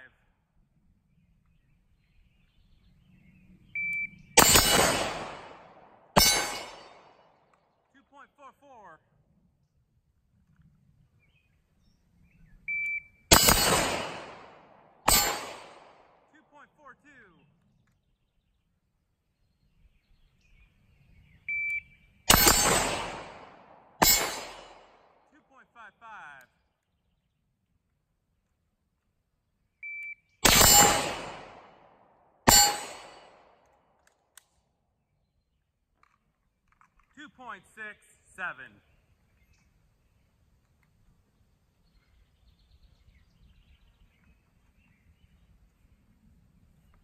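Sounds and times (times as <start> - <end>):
shot timer beep: 3.8 - 4.1, 12.7 - 13.1, 21.5 - 21.9, 29.8 - 31.0
gunshots with echoing tail: 4.4 - 7.5, 13.3 - 16.3, 22.3 - 25.3, 30.4 - 33.6.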